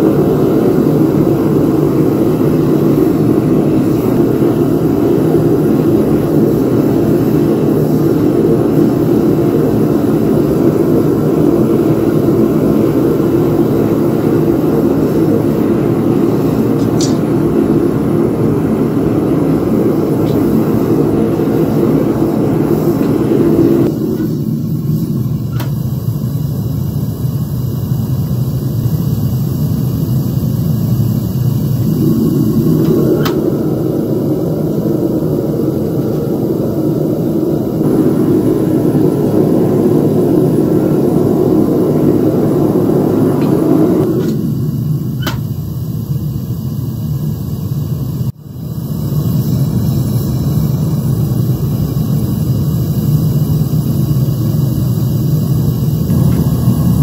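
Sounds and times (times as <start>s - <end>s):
gas burner roaring: 0.0s - 57.0s.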